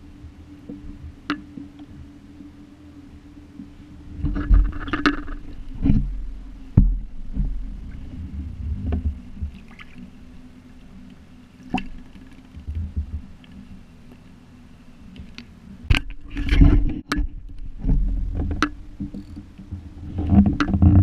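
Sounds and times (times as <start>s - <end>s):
small waves lapping: 0.0s - 21.0s
knocks against hull: 4.2s - 9.6s.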